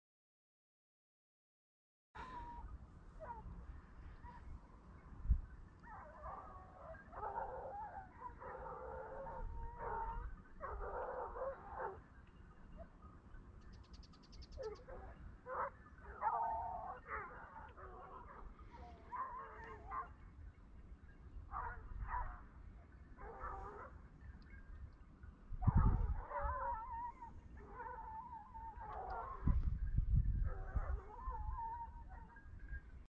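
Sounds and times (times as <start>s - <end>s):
dogs baying and yelping: 2.2s - 4.6s, 5.7s - 13.2s, 14.4s - 20.3s, 21.5s - 24.8s, 25.6s - 29.7s, 30.4s - 32.6s.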